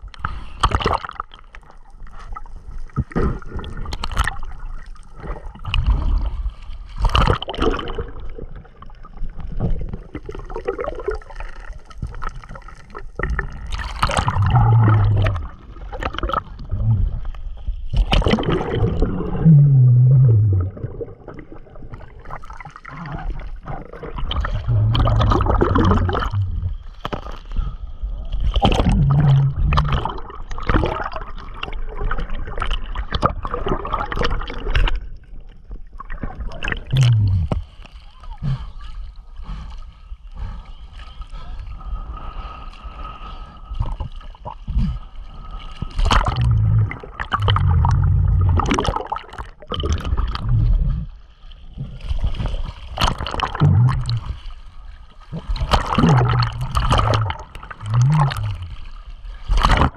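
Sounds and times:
seawater sloshing and splashing: 0.0 - 19.5, 40.8 - 59.9.

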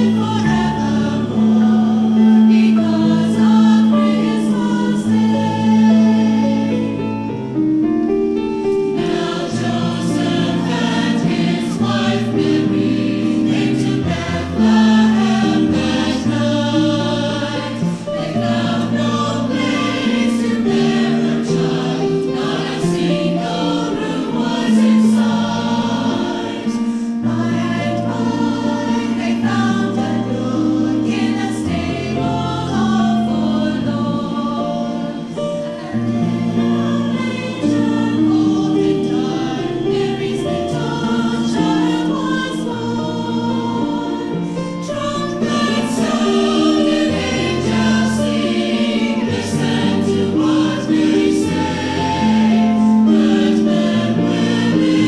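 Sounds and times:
mixed choir singing in harmony: 0.0 - 55.0.

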